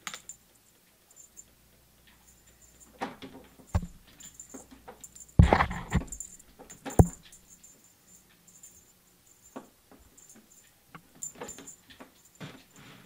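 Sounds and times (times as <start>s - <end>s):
cat pawing taps and rustles: 2.0s - 7.4s
cat thumping on table: 3.8s - 4.0s.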